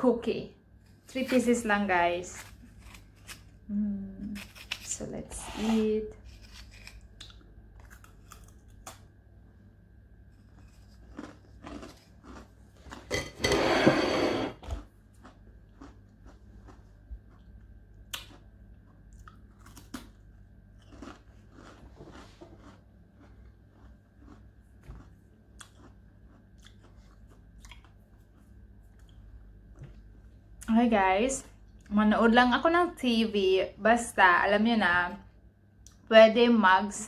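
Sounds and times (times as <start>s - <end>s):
cookie crunching: 6.2s - 9.1s, 10.2s - 13.4s, 14.6s - 29.3s.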